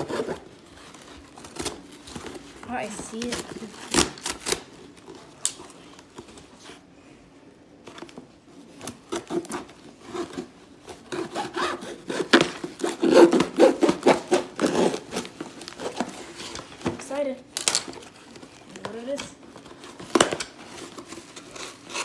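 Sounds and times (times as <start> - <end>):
scissors cutting cardboard: 0.0 - 4.6, 8.8 - 16.7, 19.8 - 22.0.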